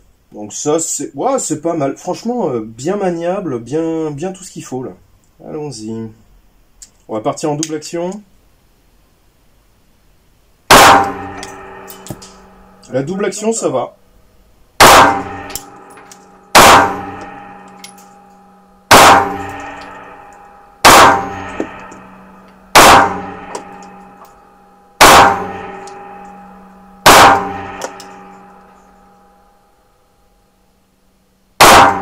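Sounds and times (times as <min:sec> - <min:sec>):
pistol shots: 0:10.7 - 0:12.3, 0:14.8 - 0:15.7, 0:16.5 - 0:17.3, 0:18.9 - 0:20.0, 0:20.8 - 0:21.7, 0:22.7 - 0:23.8, 0:25.0 - 0:26.0, 0:27.0 - 0:28.1, 0:31.6 - 0:32.0
ringing echo indoors: 0:10.7 - 0:32.0.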